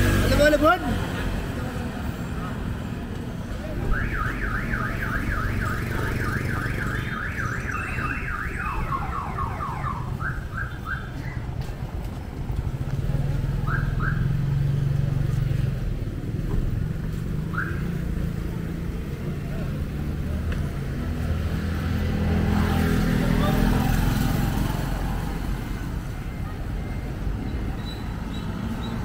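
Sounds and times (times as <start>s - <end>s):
vehicle alarm siren wailing: 3.8s - 11.4s.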